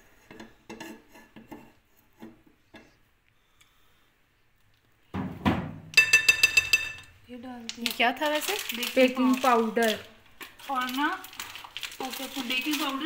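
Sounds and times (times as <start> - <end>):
metal spoon clinking on dishes: 6.0 - 7.1.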